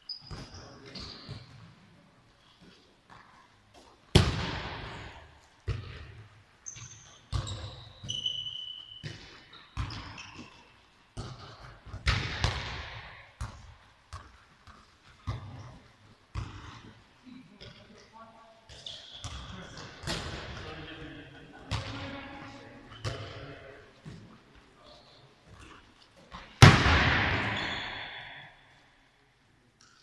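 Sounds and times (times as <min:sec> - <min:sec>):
shoe squeaks: 0:00.0 - 0:01.5, 0:06.6 - 0:10.8, 0:18.7 - 0:19.6
handball thuds echoing: 0:04.1 - 0:06.3, 0:11.2 - 0:16.9, 0:26.3 - 0:28.5.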